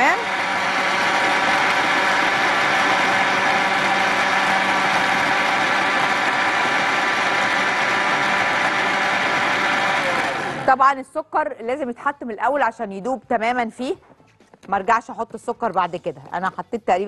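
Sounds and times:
blender motor whine: 0:00.0 - 0:10.8
liquid churning: 0:00.3 - 0:10.6.

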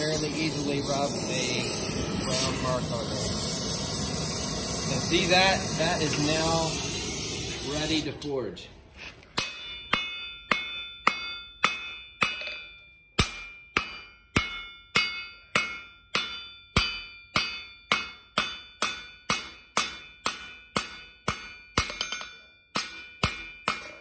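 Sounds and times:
hammer striking metal on anvil: 0:09.3 - 0:24.0
anvil ringing: 0:09.4 - 0:24.0.

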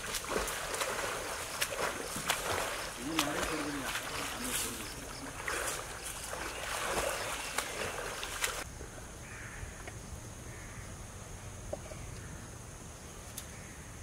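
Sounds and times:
man swimming splashing water: 0:00.0 - 0:08.7.

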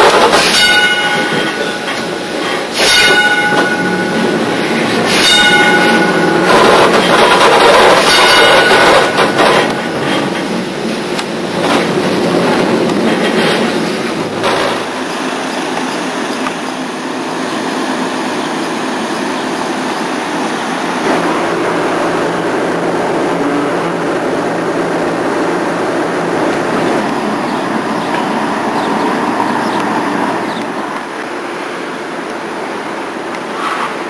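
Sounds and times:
railcar running on track: 0:00.0 - 0:34.0
knocks from railcar: 0:04.9 - 0:10.6, 0:11.2 - 0:15.0.

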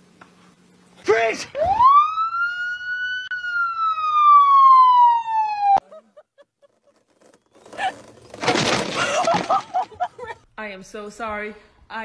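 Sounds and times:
siren wail: 0:01.5 - 0:05.8.

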